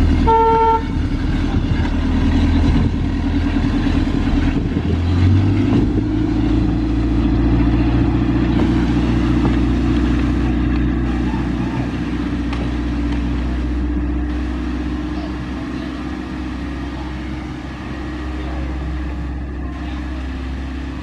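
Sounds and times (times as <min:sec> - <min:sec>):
large engine running loud: 0:00.0 - 0:21.0
short horn toot: 0:00.2 - 0:00.9.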